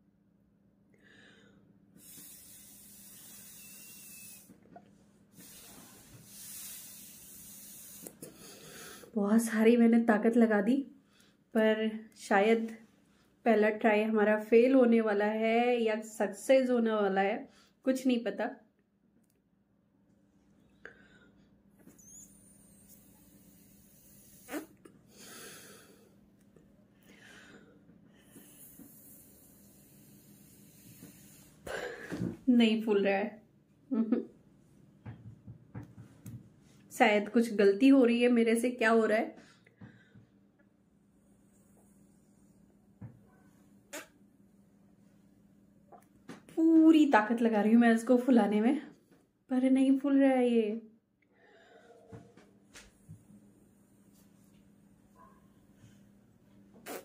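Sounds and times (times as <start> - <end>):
breath blown through a straw: 2.0 - 4.5, 5.3 - 9.1, 22.0 - 26.0, 28.2 - 31.7
short rising squeak: 21.9 - 23.0.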